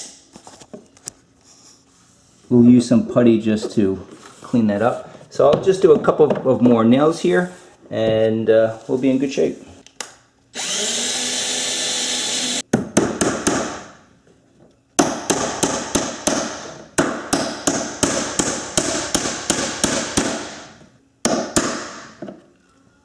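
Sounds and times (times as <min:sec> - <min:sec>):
cordless drill boring: 0:10.6 - 0:12.6.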